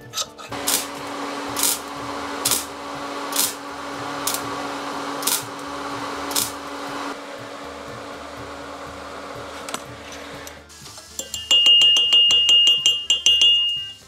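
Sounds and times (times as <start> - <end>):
steady machine hum: 0.5 - 10.6.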